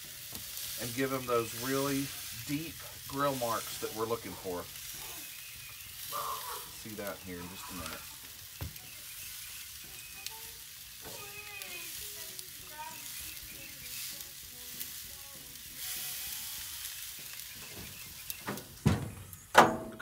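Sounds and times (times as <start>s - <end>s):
steaks sizzling on a grill: 0.0s - 19.5s
metal grill lid clanking shut: 18.4s - 20.0s.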